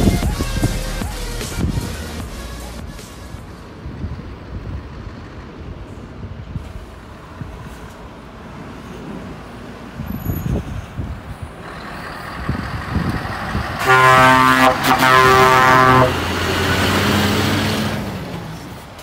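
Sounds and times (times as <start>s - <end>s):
lorry engine rumbling: 0.0s - 19.0s
truck horn blasts: 13.6s - 16.5s.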